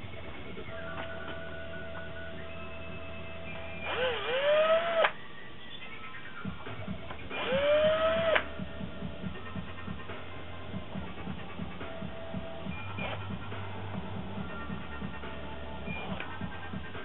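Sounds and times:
cordless drill whining: 3.8 - 5.2, 7.3 - 8.5.

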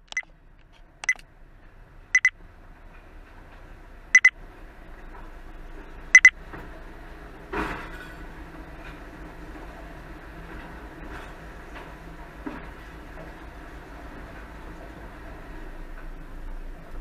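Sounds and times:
garbage truck running: 0.0 - 17.0
short high electronic beeps: 1.0 - 1.2.

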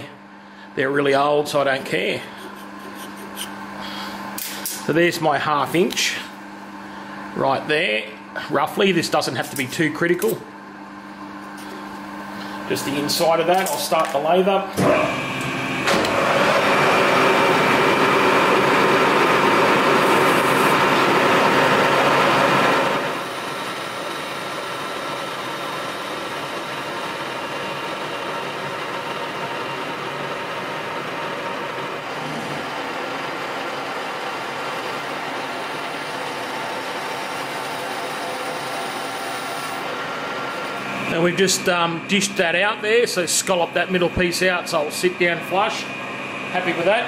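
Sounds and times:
lathe whining: 10.9 - 47.0.

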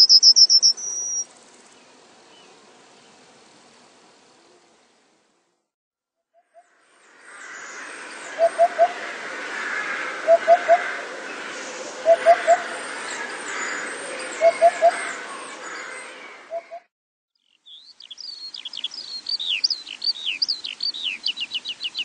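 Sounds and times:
thin high bird chirps: 0.0 - 1.2, 17.4 - 22.0
outdoor ambience hiss: 0.0 - 5.7, 6.7 - 14.4, 17.4 - 22.0.

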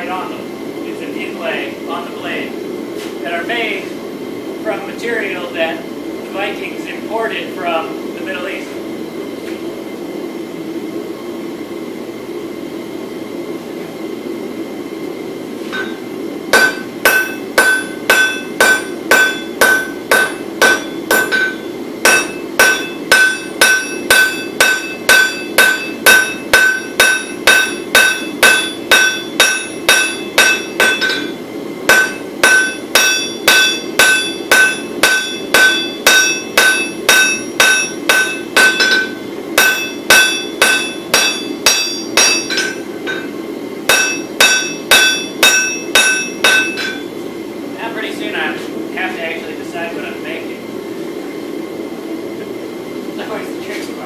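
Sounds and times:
steady hum: 0.0 - 54.0
hammer ringing on anvil: 15.7 - 47.1.

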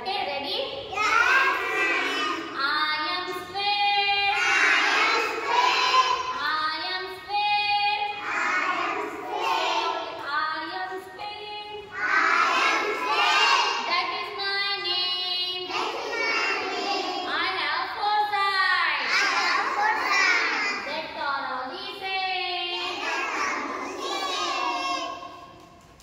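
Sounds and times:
children singing in unison: 1.0 - 2.6, 4.2 - 6.4, 8.0 - 10.2, 11.9 - 13.8, 15.7 - 17.3, 19.1 - 20.8, 22.8 - 25.4.

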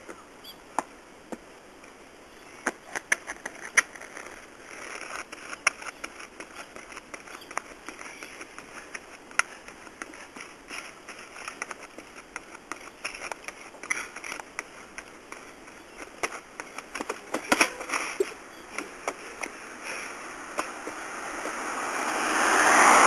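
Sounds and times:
unicycle clattering on steps: 3.0 - 19.6
unicycle knocking on concrete steps: 5.7 - 19.6.

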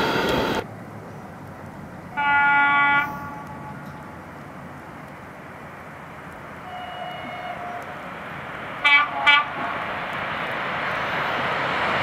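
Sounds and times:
train rushing: 0.0 - 0.7, 1.8 - 12.0
locomotive horn blasts: 2.1 - 4.0, 6.6 - 8.0, 8.8 - 9.7.

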